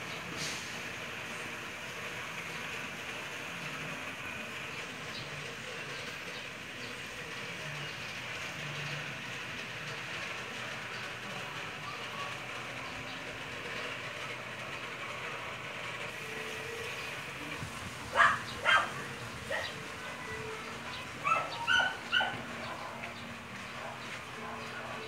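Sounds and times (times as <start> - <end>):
dog barking: 18.1 - 19.8, 21.2 - 22.4.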